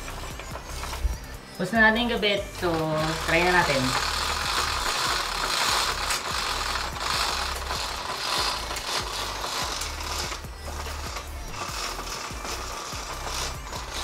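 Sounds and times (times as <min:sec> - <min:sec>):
roller blind clutch ratcheting: 0:00.0 - 0:01.4, 0:02.6 - 0:14.0
chain beads clicking: 0:03.0 - 0:14.0.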